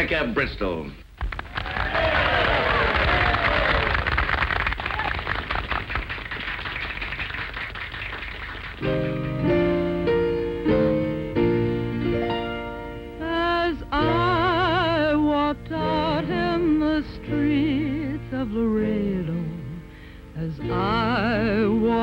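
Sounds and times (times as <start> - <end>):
applause: 1.2 - 9.4
held accompaniment chords: 8.8 - 22.0
woman singing operatically: 13.2 - 22.0.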